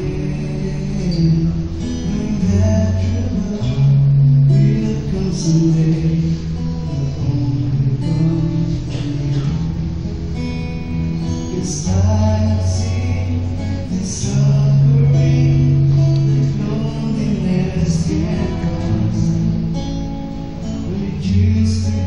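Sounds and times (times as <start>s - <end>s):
acoustic guitar strumming: 0.0s - 22.0s
men singing together: 11.5s - 19.7s.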